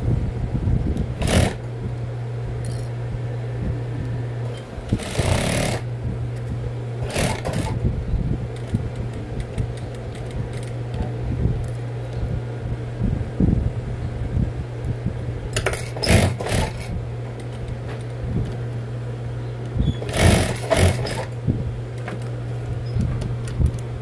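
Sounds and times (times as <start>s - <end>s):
sewing machine stitching: 1.2s - 1.6s, 4.9s - 5.8s, 7.0s - 7.8s, 15.6s - 16.9s, 19.9s - 21.3s.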